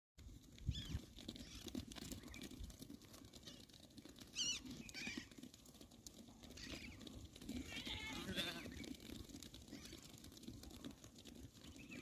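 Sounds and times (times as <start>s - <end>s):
sheep trotting over dry grass: 0.2s - 12.0s
high-pitched sheep calls: 7.5s - 8.9s.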